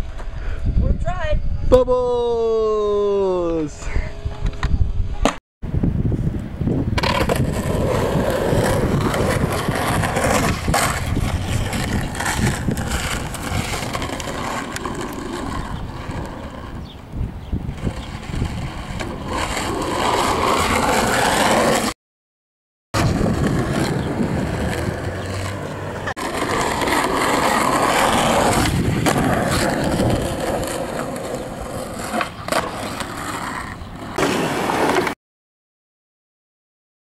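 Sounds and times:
skateboard wheels rolling on asphalt: 0:05.9 - 0:22.0, 0:23.0 - 0:35.2.

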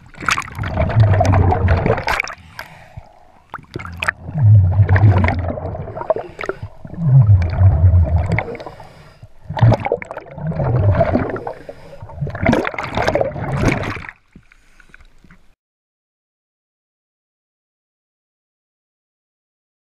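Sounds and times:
bubbles gurgling underwater: 0:00.0 - 0:14.1
hissing regulator breaths: 0:05.9 - 0:06.9, 0:08.4 - 0:09.4, 0:11.4 - 0:12.1.

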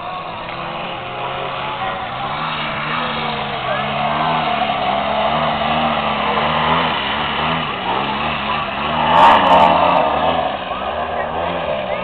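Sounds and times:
model airplane engine: 0:00.0 - 0:08.9.

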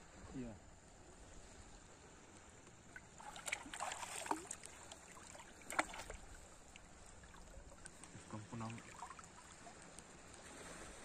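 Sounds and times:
hands splashing in seawater: 0:03.1 - 0:06.4.

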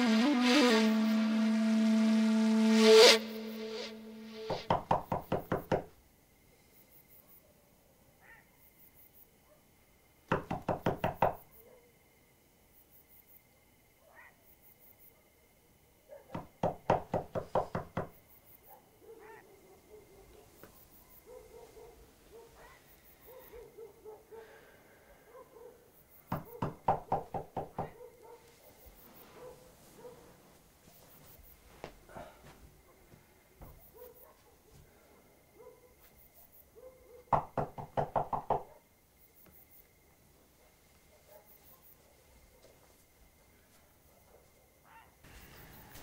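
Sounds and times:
rapid knocking on door: 0:04.7 - 0:05.9, 0:10.3 - 0:11.4, 0:26.3 - 0:27.9, 0:37.4 - 0:38.6.

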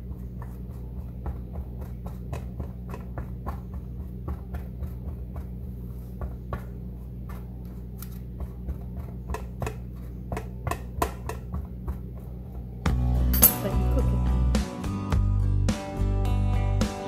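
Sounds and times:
steady low hum: 0:00.0 - 0:14.6.

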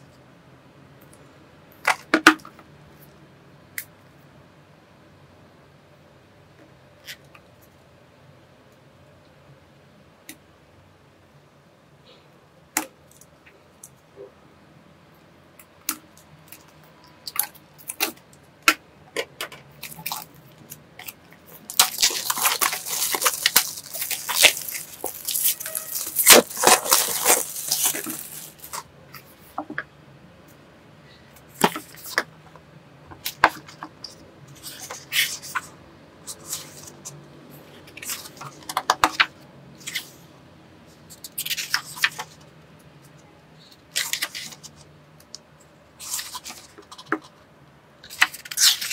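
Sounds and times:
plastic shrink-wrap crinkling and tearing: 0:19.8 - 0:28.9, 0:48.1 - 0:48.9
hands tapping and rustling book: 0:21.0 - 0:28.8
paper pages flipping: 0:21.0 - 0:28.9, 0:41.2 - 0:42.4, 0:43.9 - 0:44.8, 0:48.1 - 0:48.9.

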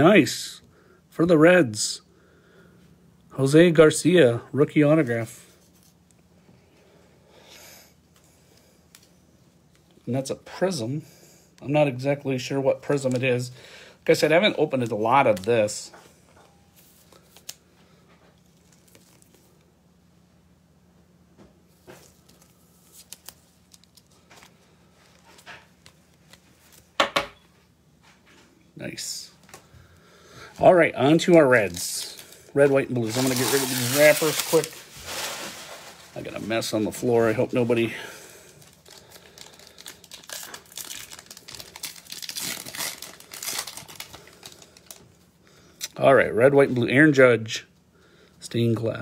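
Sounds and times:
plastic wrapper crinkling: 0:14.1 - 0:15.9, 0:18.4 - 0:19.7, 0:21.8 - 0:27.0, 0:31.0 - 0:45.2
plastic sleeve rustling and scraping: 0:30.6 - 0:45.0.

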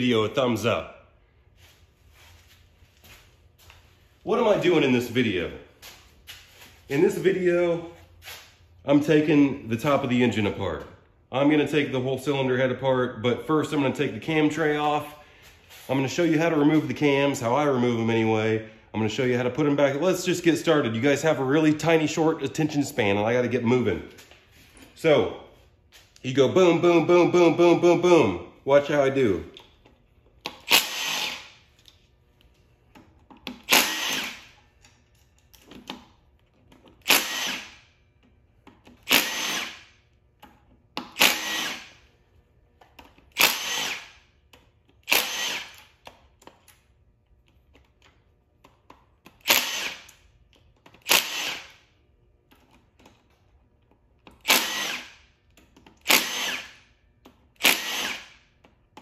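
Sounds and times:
cordless power tool spinning: 0:30.6 - 0:31.5, 0:33.6 - 0:34.6, 0:37.0 - 0:37.8, 0:39.0 - 0:39.9, 0:41.2 - 0:42.0, 0:43.3 - 0:44.2, 0:45.0 - 0:45.9, 0:49.4 - 0:50.1, 0:51.0 - 0:51.7, 0:54.4 - 0:55.2, 0:56.0 - 0:56.8, 0:57.6 - 0:58.4.

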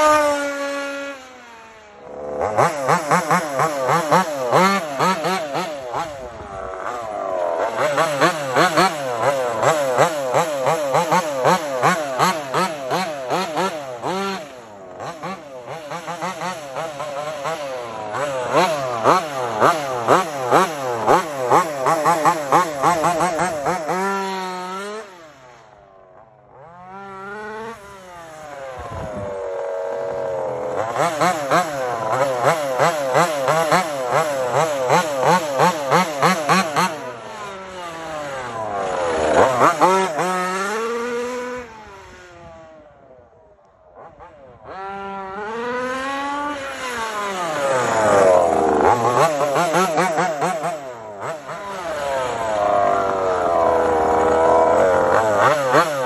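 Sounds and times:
rc car engine revving: 0:00.0 - 0:56.0.

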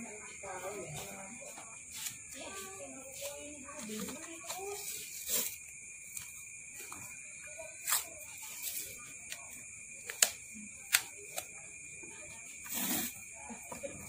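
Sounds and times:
paper tape wrapping a coil: 0:03.8 - 0:05.6, 0:12.6 - 0:13.2.

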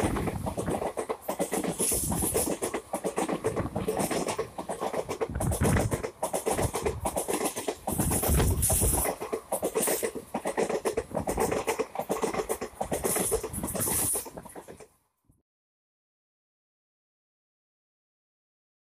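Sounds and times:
wind rush: 0:00.0 - 0:14.6
train wheels clattering: 0:00.0 - 0:14.9.

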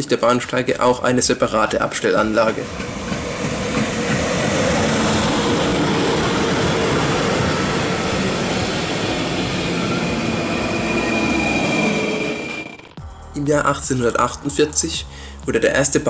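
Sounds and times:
train wheels rumbling on rails: 0:01.7 - 0:13.0.

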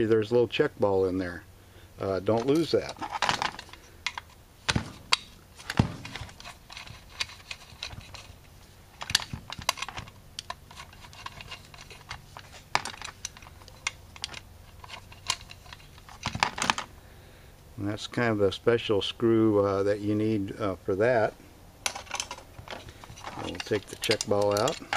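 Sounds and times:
clicks of small metal parts: 0:02.4 - 0:04.4, 0:09.0 - 0:16.9, 0:21.8 - 0:24.9.

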